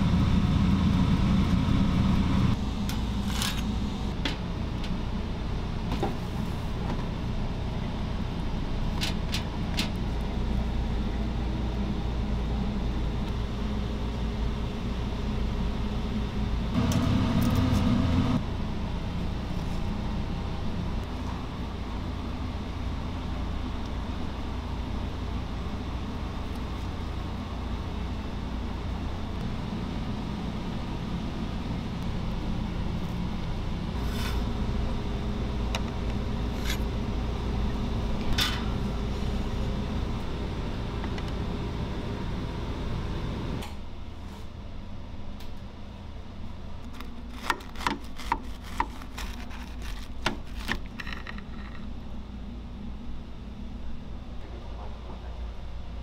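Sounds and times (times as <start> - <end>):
kitchen hum: 0.0 - 28.0, 46.2 - 55.4
knife cutting crispy chicken: 47.3 - 50.8.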